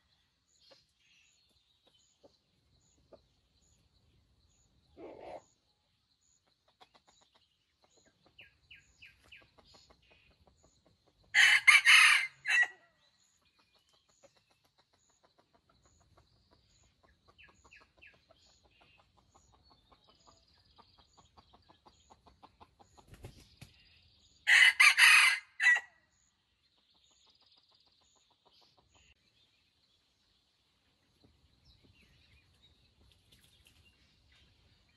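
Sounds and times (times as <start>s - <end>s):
soft clucking: 6.5s - 11.3s, 13.8s - 23.3s
rooster crowing: 11.4s - 12.8s, 24.5s - 25.9s.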